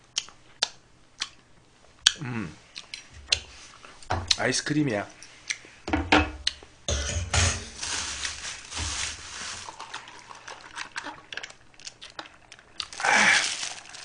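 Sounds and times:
rustling: 0:07.4 - 0:11.0, 0:12.8 - 0:14.0.

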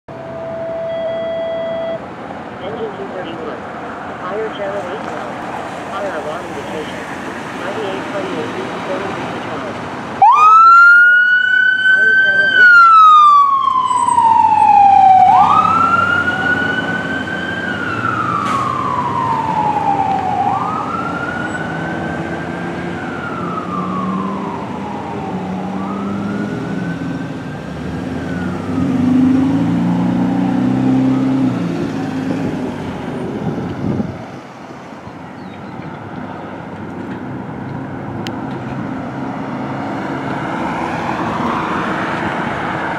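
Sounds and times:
road traffic: 0:00.1 - 0:42.9
fire engine siren wailing: 0:05.9 - 0:34.1, 0:39.0 - 0:42.9
heavy truck engine rumbling: 0:12.2 - 0:42.9.

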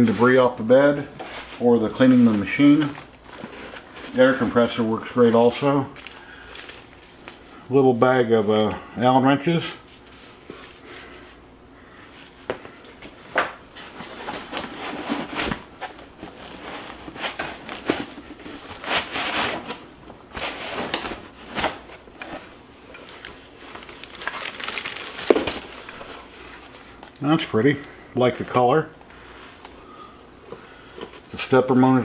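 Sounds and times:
plastic packaging crinkling: 0:01.8 - 0:07.4, 0:13.8 - 0:27.8
foam packing scraping: 0:13.8 - 0:22.6.

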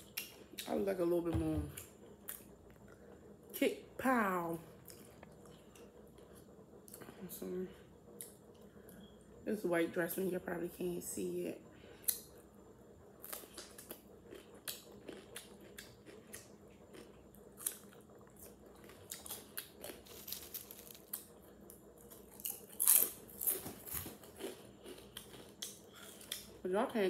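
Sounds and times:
cucumber being bitten and chewed: 0:13.2 - 0:26.6.

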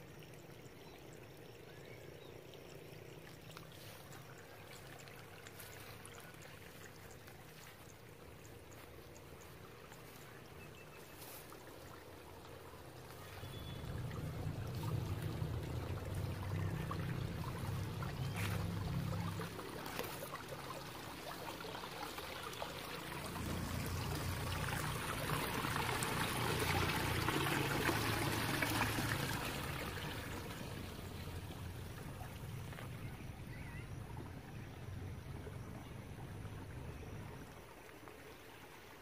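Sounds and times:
water running: 0:02.4 - 0:32.9.

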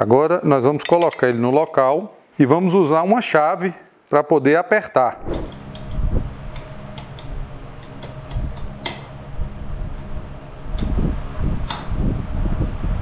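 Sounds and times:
hand tools clinking on metal: 0:00.8 - 0:01.9
faint steady hum: 0:05.2 - 0:13.0.

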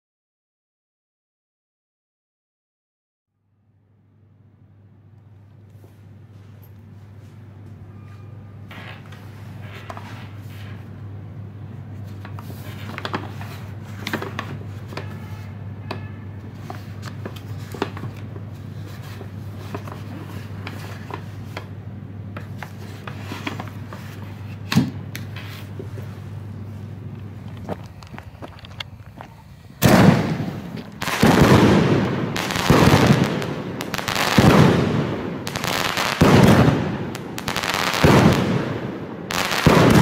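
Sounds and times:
steady low hum: 0:03.4 - 0:40.0.

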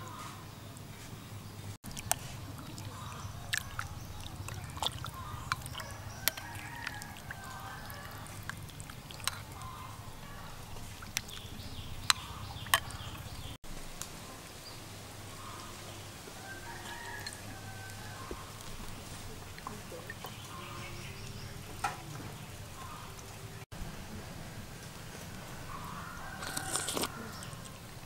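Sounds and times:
spoon clinking against bowls: 0:02.0 - 0:09.6.

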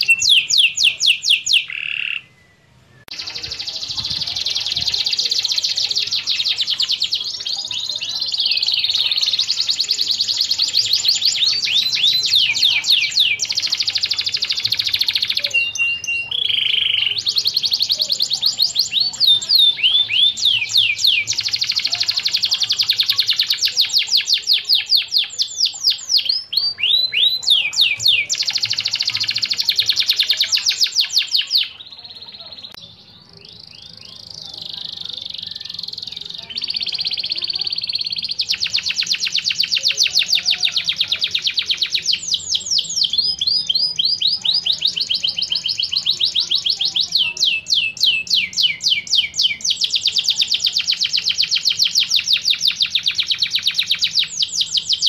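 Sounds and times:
canary singing trills: 0:00.0 - 0:55.0.

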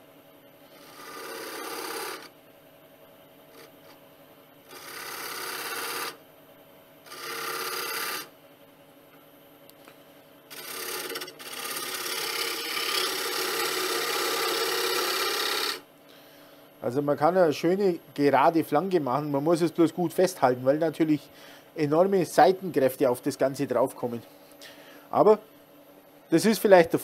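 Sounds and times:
turning tool scraping wood on lathe: 0:00.8 - 0:02.3, 0:04.7 - 0:06.2, 0:07.1 - 0:08.3, 0:10.5 - 0:15.8.

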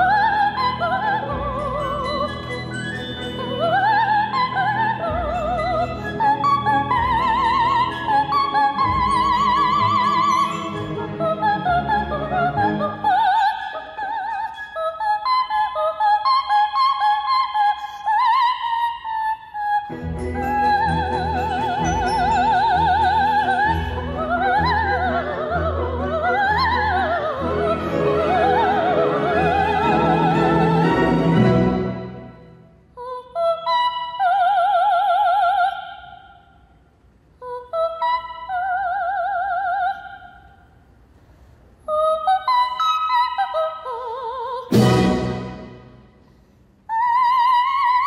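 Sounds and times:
orchestral accompaniment: 0:00.0 - 0:13.1, 0:19.9 - 0:32.7, 0:44.7 - 0:46.4
soprano singing with vibrato: 0:00.0 - 0:36.6, 0:37.4 - 0:40.7, 0:41.8 - 0:46.1, 0:46.9 - 0:48.0.

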